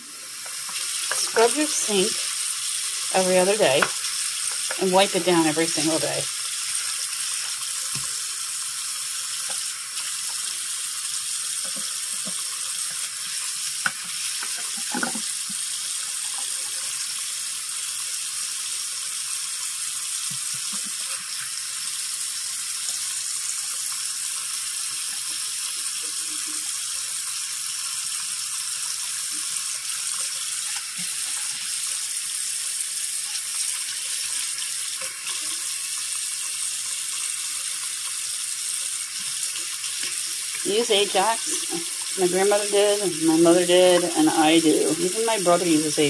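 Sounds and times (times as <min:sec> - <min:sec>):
brush scrubbing sink: 0:00.0 - 0:07.8, 0:33.4 - 0:46.0
tap running into sink: 0:03.7 - 0:04.8, 0:11.5 - 0:15.7.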